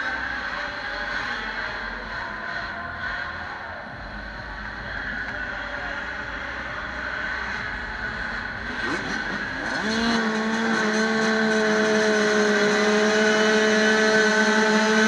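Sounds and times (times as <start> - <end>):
other motorbike engines running: 3.9 - 15.0
dirt bike engine revving: 4.2 - 15.0.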